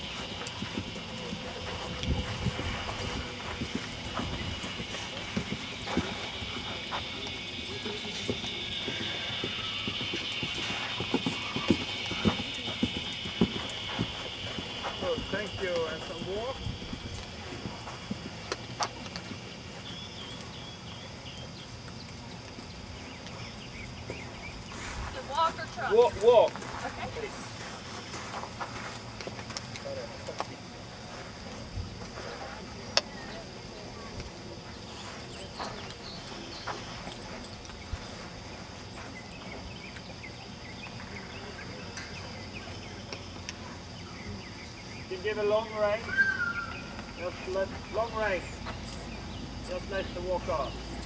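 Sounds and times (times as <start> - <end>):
high insect drone: 0.0 - 51.0
hooves trotting on sand: 0.0 - 51.0
bird chirps: 46.0 - 51.0.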